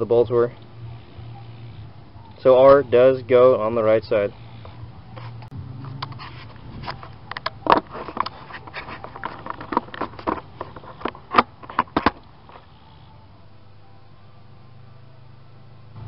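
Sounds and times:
steady low hum: 0:00.0 - 0:16.0
handling clicks and knocks: 0:05.4 - 0:12.7.

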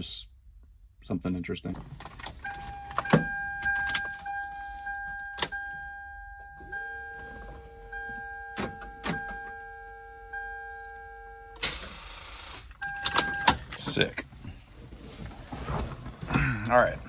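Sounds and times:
lower electronic tone: 0:02.7 - 0:11.6.

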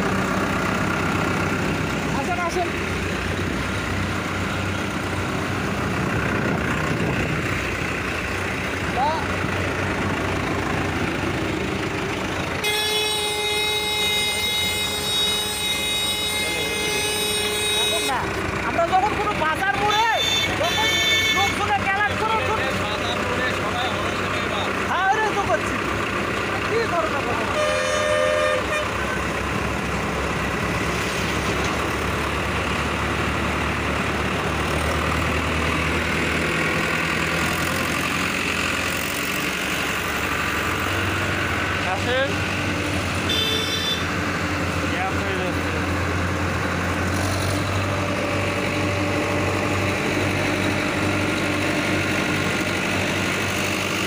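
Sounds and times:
tractor diesel engine running: 0:00.0 - 0:54.0
multi-tone horn: 0:12.6 - 0:18.2, 0:20.1 - 0:21.6, 0:27.5 - 0:29.2, 0:43.3 - 0:44.1.

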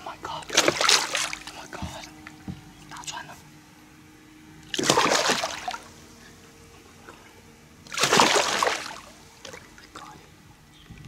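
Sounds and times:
fish splashing water: 0:00.4 - 0:02.4, 0:04.6 - 0:06.1, 0:07.0 - 0:10.2.

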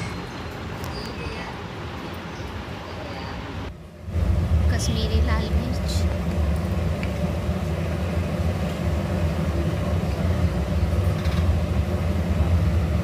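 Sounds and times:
faint hum: 0:02.4 - 0:13.0
steady low rumble: 0:03.6 - 0:13.0.

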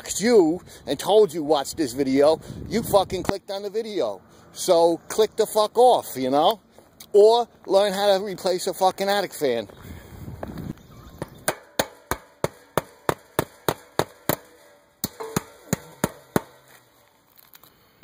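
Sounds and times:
hammer striking nails into metal: 0:11.4 - 0:16.8.

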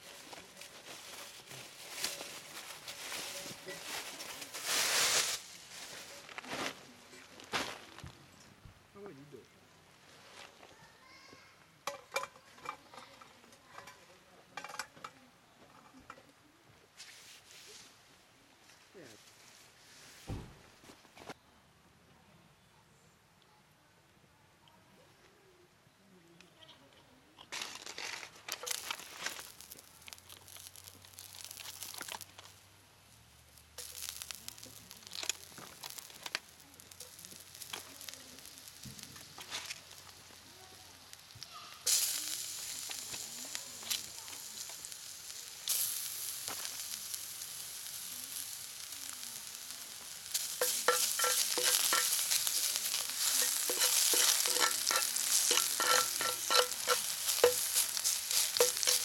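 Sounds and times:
garlic crackling in hot oil: 0:00.0 - 0:06.0, 0:27.8 - 0:59.0
cast iron pan knocking on metal stove: 0:50.6 - 0:52.4, 0:53.4 - 0:57.8, 0:58.4 - 0:59.0.

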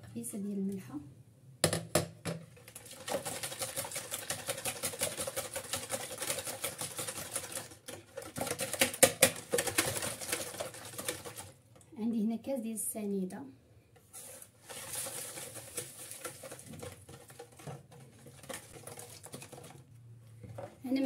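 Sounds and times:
whisk beating eggs in bowl: 0:02.5 - 0:11.6, 0:14.2 - 0:20.8.

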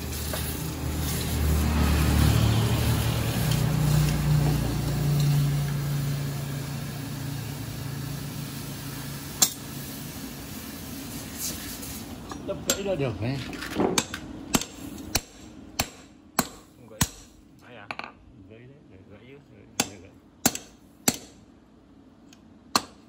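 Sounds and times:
low motor hum: 0:00.0 - 0:09.4.

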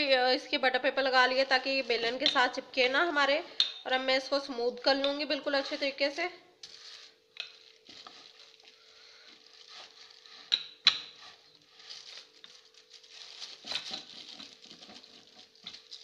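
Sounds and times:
faint steady hum: 0:00.0 - 0:16.0
paper rustling and crinkling: 0:06.6 - 0:10.5, 0:11.2 - 0:16.0.

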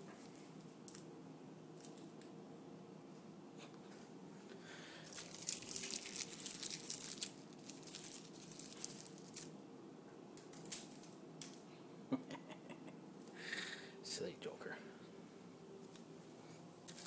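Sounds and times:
crinkly rustling: 0:04.9 - 0:09.6, 0:10.4 - 0:11.6, 0:15.8 - 0:17.0.

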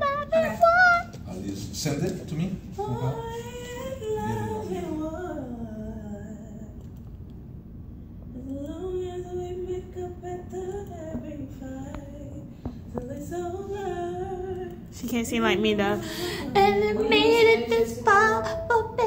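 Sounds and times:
woman singing long notes: 0:15.9 - 0:19.0.

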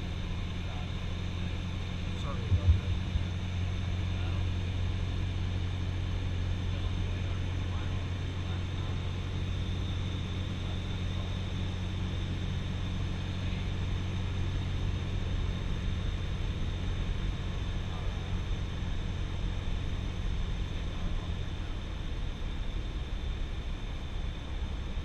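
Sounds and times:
aircraft engine and propeller droning: 0:00.0 - 0:25.0
rushing airflow: 0:02.2 - 0:04.0.

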